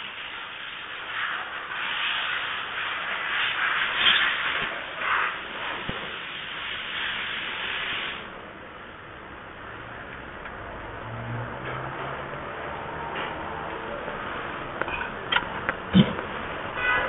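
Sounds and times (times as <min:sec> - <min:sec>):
steady hissing: 0:00.0 - 0:08.4.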